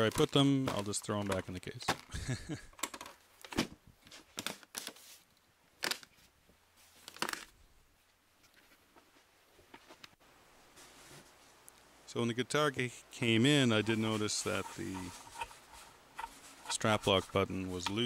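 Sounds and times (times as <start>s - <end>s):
sharp clacks and knocks: 13.8s - 18.0s.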